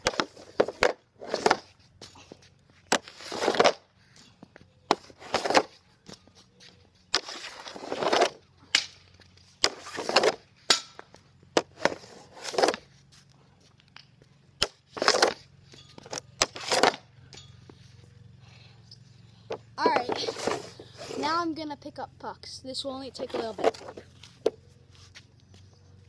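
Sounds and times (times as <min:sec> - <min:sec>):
hockey stick scraping plastic pad: 0:00.0 - 0:01.9, 0:02.9 - 0:03.9, 0:04.9 - 0:05.8, 0:07.1 - 0:08.4, 0:09.4 - 0:10.6, 0:11.6 - 0:13.2, 0:14.6 - 0:17.1, 0:19.8 - 0:21.4, 0:23.2 - 0:25.3
stick and puck clacks: 0:07.1 - 0:12.8, 0:13.8 - 0:17.5.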